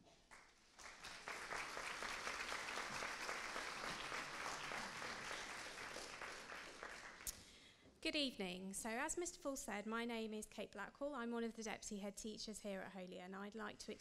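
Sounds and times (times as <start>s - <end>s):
audience applauding: 0.3s - 7.3s.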